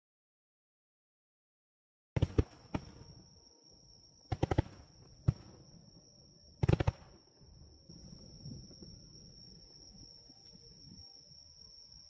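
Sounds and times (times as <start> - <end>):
fireworks bangs: 4.3 - 5.6, 6.6 - 7.2.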